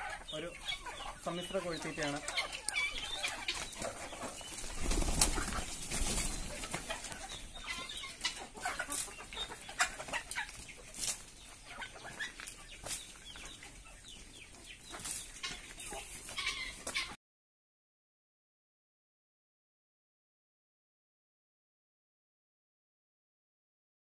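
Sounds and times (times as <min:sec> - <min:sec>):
chickens clucking: 0:00.0 - 0:17.2.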